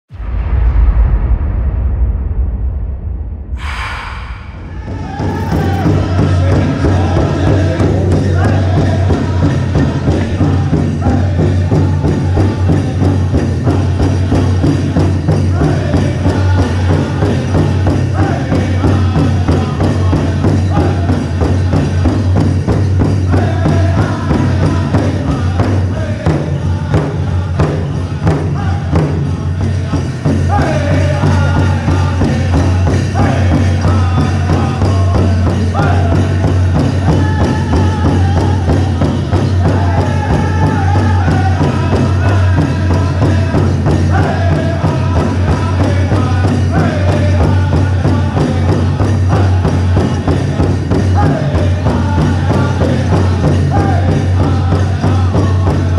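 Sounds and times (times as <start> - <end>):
large drum beating: 0.1 - 55.9
high-pitched group singing: 3.6 - 55.9.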